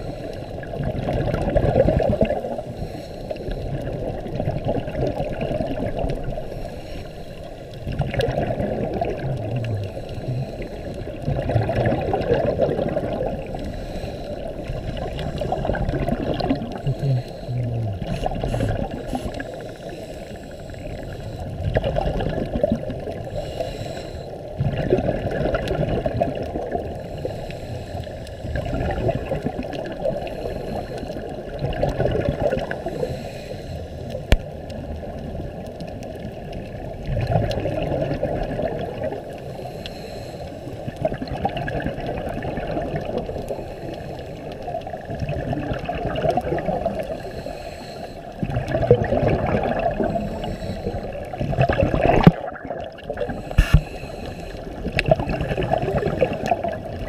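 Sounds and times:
underwater regulator bubbling: 0.0 - 40.0, 40.8 - 47.6, 48.2 - 57.0
exhaled bubbles bursting: 0.6 - 2.6, 3.7 - 6.5, 7.8 - 13.7, 14.4 - 19.6, 21.5 - 23.3, 24.6 - 26.9, 28.4 - 30.6, 31.2 - 32.9, 34.8 - 39.4, 40.8 - 43.4, 44.5 - 47.2, 48.4 - 53.9, 54.7 - 57.0.

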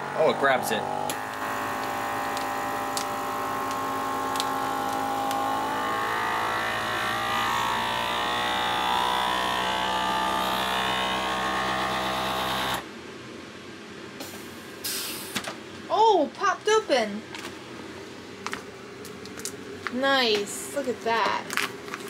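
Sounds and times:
vacuum sealer pump running: 0.0 - 12.9.

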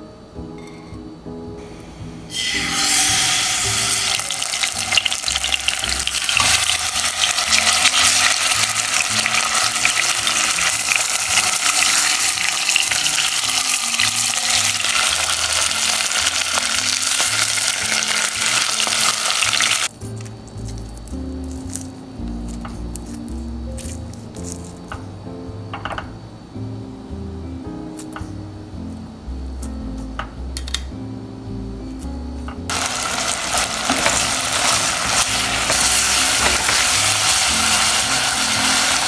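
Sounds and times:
chicken sizzling in hot oil: 2.3 - 19.9, 32.7 - 39.0.

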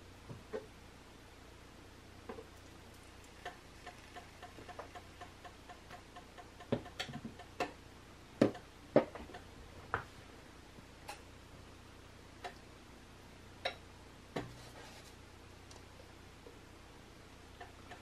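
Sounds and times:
water boiling with pops and clicks: 2.3 - 7.8, 8.4 - 10.1, 11.0 - 11.3, 12.4 - 12.7, 13.6 - 13.8, 17.5 - 18.0.

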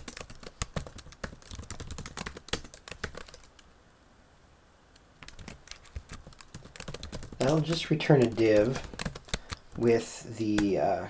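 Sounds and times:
computer keyboard typing: 0.0 - 3.6, 5.2 - 9.8.

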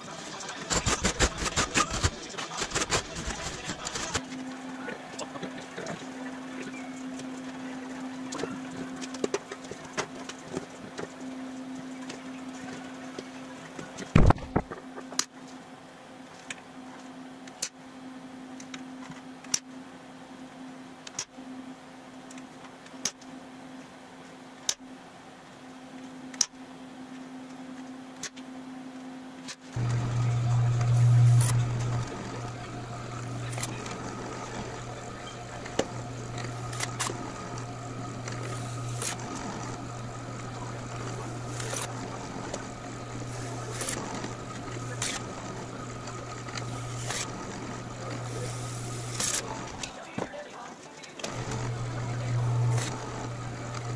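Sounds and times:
steady low hum: 0.0 - 50.1, 51.2 - 53.9
hand snips cutting metal sheet: 0.7 - 4.2
drill press drilling metal: 29.8 - 49.8, 51.3 - 53.9.

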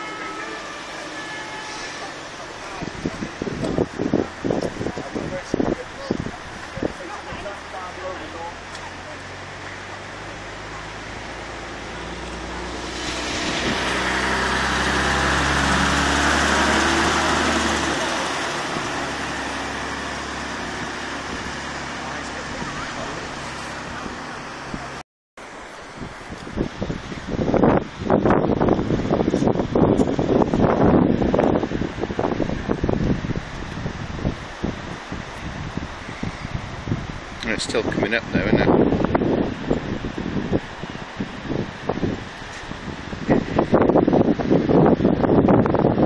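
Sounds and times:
floodwater rushing: 0.0 - 46.0
truck engine hum: 0.0 - 46.0.

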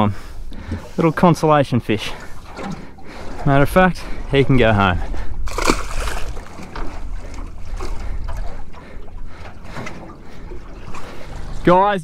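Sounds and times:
water slapping against boat hull: 0.6 - 12.0
fish splashing into water: 5.5 - 7.0.

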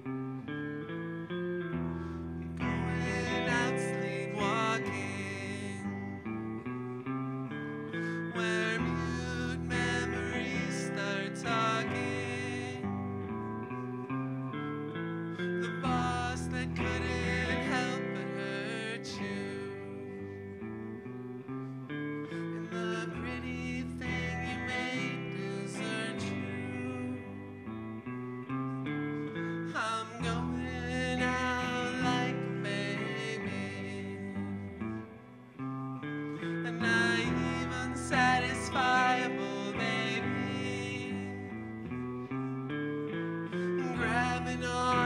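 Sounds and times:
electric guitar playing: 0.0 - 45.0
voices singing: 2.6 - 6.1, 8.2 - 13.0, 15.7 - 19.9, 36.6 - 41.7.

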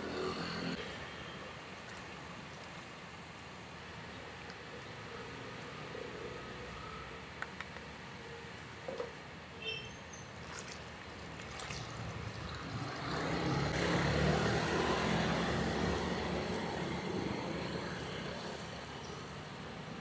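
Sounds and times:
liquid pouring and splashing: 10.3 - 13.7.

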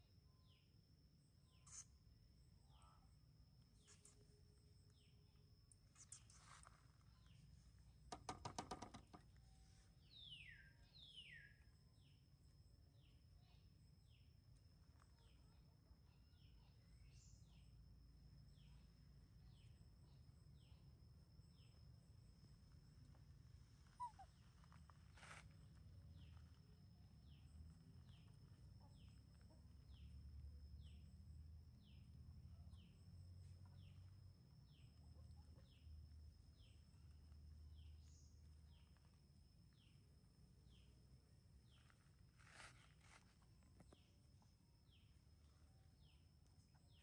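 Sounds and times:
short falling chirp: 24.0 - 24.3
brief rustle: 42.3 - 44.0.

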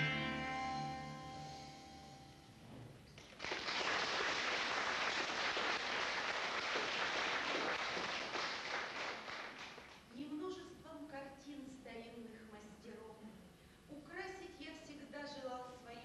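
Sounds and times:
guitar and violin chord ringing: 0.0 - 2.5
audience applause: 3.2 - 10.0.

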